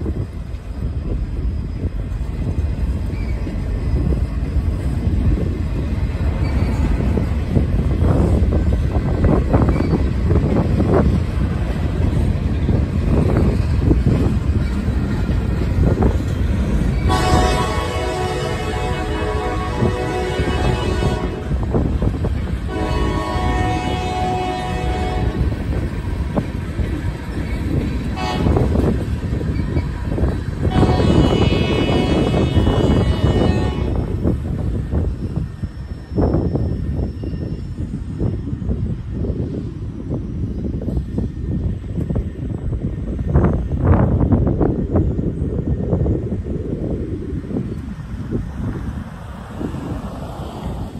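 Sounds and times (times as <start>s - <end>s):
train wheels rumbling on rail: 0.0s - 50.9s
train horn: 17.0s - 21.6s, 22.7s - 25.5s, 28.2s - 28.7s, 30.6s - 34.1s.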